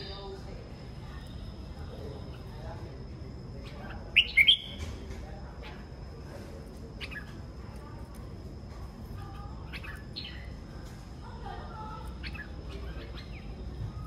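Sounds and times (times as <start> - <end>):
birds chirping and whistling: 3.6 - 5.0, 7.0 - 7.5, 9.3 - 10.7, 12.0 - 14.0.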